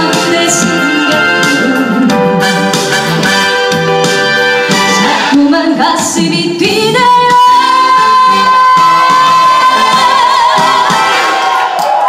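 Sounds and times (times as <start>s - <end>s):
woman singing into microphone: 0.0s - 2.6s, 4.8s - 11.4s
band accompaniment: 0.0s - 12.0s.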